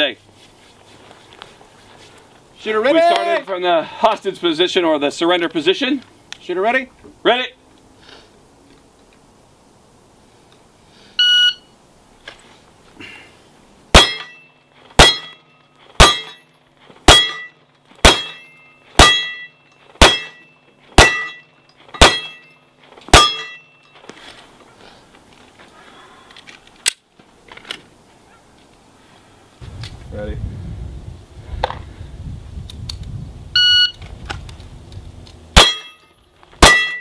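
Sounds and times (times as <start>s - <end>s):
shot timer beep: 11.2s - 11.7s, 33.6s - 34.0s
pistol shots: 13.9s - 14.3s, 15.0s - 15.3s, 17.1s - 18.4s, 20.0s - 20.4s, 21.0s - 21.4s, 22.0s - 22.3s, 35.6s - 35.9s, 36.6s - 37.0s
steel target ringing: 13.9s - 16.5s, 17.1s - 23.8s, 35.6s - 37.0s.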